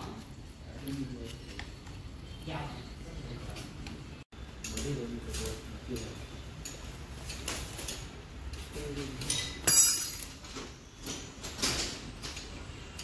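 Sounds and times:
metal tools clinking on metal: 4.5s - 13.0s.

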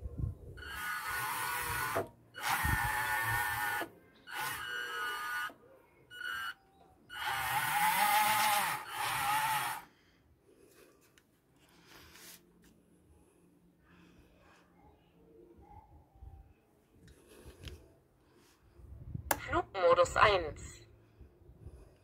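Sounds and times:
toy excavator motor whirring: 0.6s - 10.0s.

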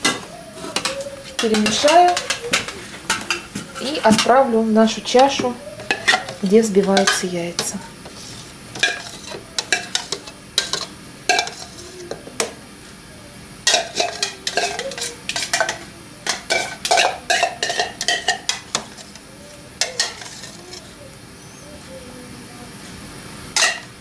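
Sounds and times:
spoon clinking and scraping cup: 8.8s - 11.9s, 13.7s - 19.2s.

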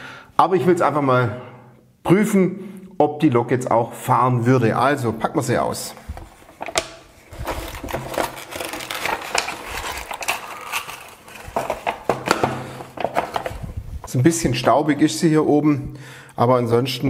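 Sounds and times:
cardboard and plastic rustling: 5.9s - 14.2s.

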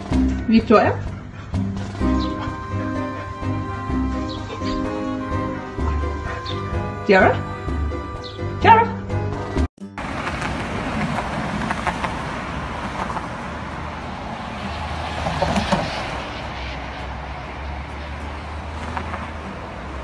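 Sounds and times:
cars passing: 0.0s - 20.0s
engine rumble: 9.1s - 20.0s.

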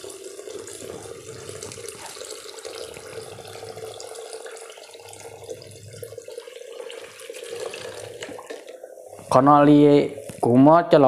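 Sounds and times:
liquid pouring into plastic container: 0.0s - 8.8s.

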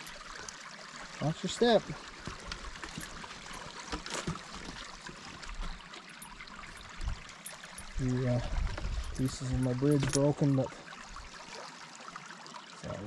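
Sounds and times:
water trickling: 0.0s - 13.0s
footsteps on wooden boards: 2.1s - 5.8s.

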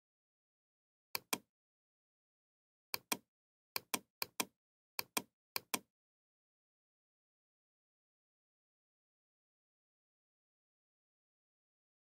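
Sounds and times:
computer mouse clicking: 1.2s - 1.5s, 3.0s - 3.2s, 3.8s - 5.9s.

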